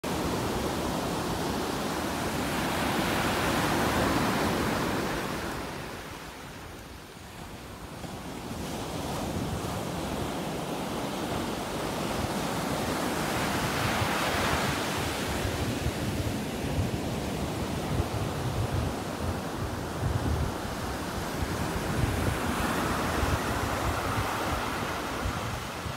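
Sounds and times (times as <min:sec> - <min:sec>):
wind buffeting on microphone: 0:07.6 - 0:25.9.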